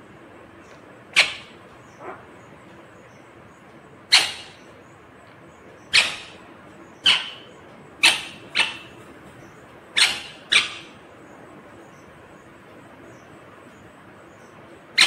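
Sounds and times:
parakeet squawking: 1.1 - 2.4, 4.1 - 4.7, 5.9 - 9.0, 10.0 - 11.0.

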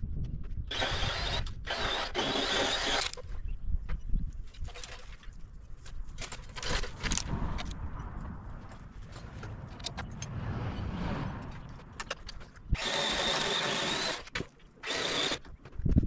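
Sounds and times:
power saw cutting branches: 0.7 - 3.3, 12.7 - 15.8
low rumbling: 6.7 - 14.2.

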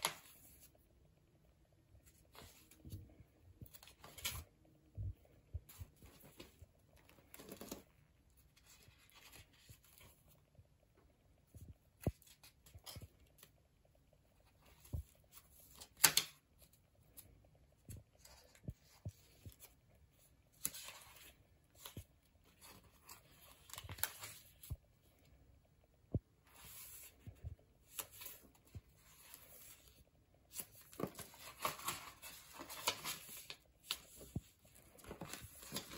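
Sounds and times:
paper pages rustling: 2.0 - 4.5, 5.6 - 10.4, 20.5 - 24.8, 26.5 - 35.9.

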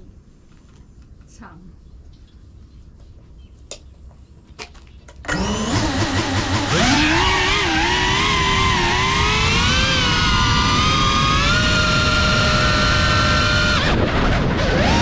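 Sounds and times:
drone motors whining: 5.3 - 15.0.

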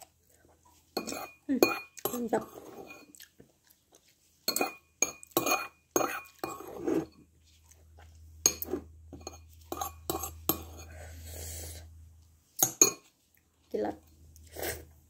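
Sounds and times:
metal spoon scraping ceramic bowl: 1.0 - 3.1, 4.5 - 7.2, 8.4 - 11.0.

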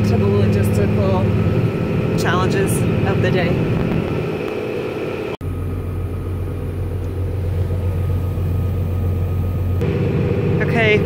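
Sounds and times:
diesel engine drone inside cab: 0.0 - 11.0.

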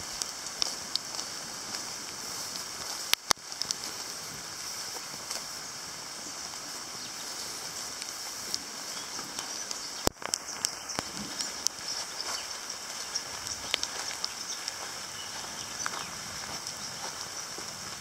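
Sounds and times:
rain falling on foliage: 0.0 - 18.0
sharp clicks: 9.2 - 14.8.

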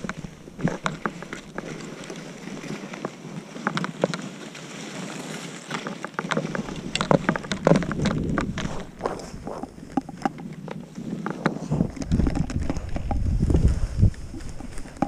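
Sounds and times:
skis scraping over snow: 0.0 - 15.0
wind rushing on microphone: 7.0 - 9.8, 11.6 - 15.0.

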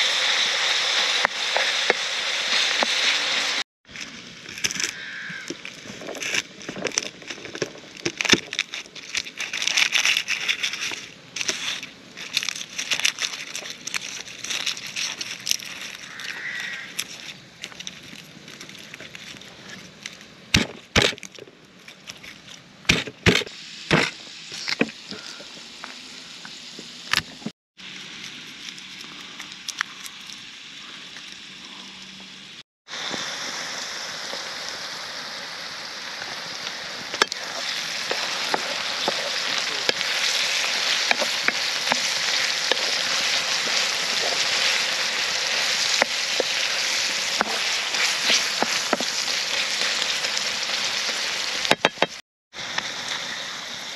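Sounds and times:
vegetables sizzling in a pan: 0.0 - 3.6, 32.3 - 53.9.

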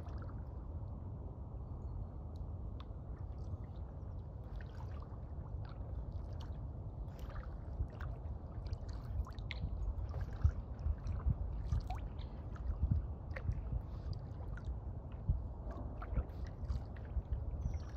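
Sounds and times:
kayak paddle dipping in water: 7.1 - 17.9.

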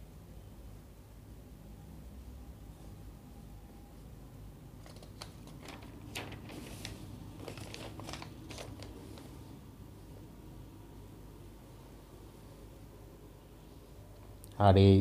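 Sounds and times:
paper pages rustling: 4.8 - 9.4.

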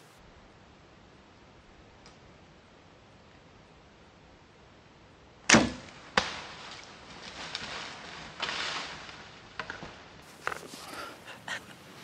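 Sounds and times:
deer rustling in leaves and snow: 6.4 - 9.6, 10.2 - 12.0.

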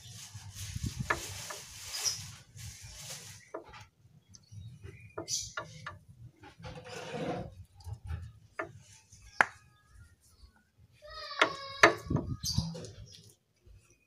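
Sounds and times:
short scraping rub: 6.6 - 7.7.

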